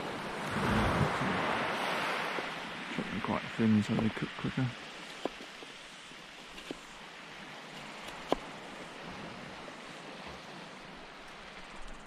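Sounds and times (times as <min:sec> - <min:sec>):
surf: 0:00.0 - 0:11.6
wind: 0:00.0 - 0:12.0.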